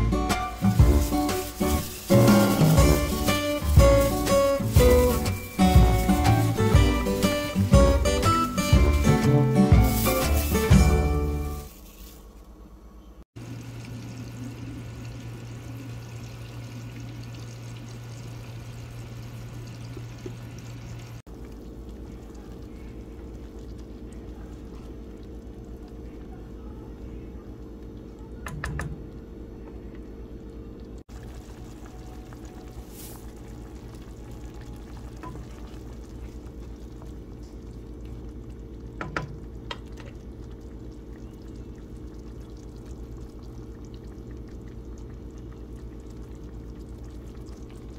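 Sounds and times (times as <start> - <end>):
broth bubbling in a pot: 13.4 - 47.9.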